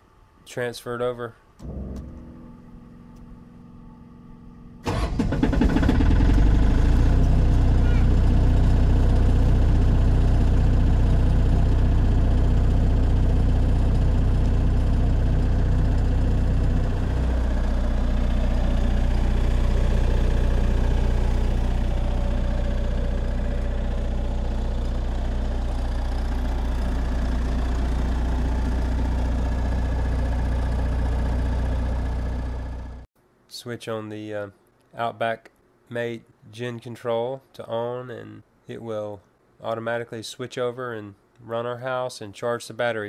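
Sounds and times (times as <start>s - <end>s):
diesel generator running: 1.5s - 33.1s.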